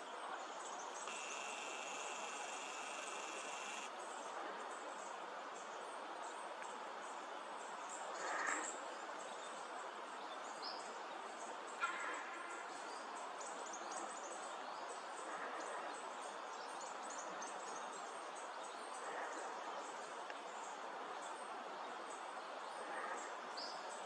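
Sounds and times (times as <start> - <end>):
steady hiss: 0.8 - 5.5
faint high chirping: 1.0 - 3.9.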